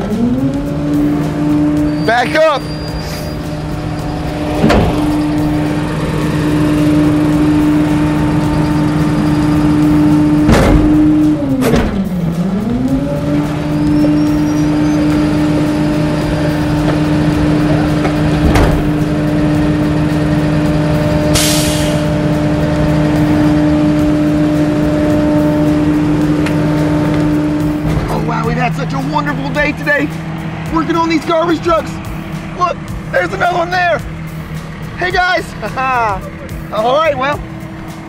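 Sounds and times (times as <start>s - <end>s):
garbage truck hydraulic whine: 1.2s - 28.1s
metal clunks: 4.4s - 5.9s, 10.4s - 12.1s, 18.0s - 19.0s
air hiss: 21.3s - 22.1s.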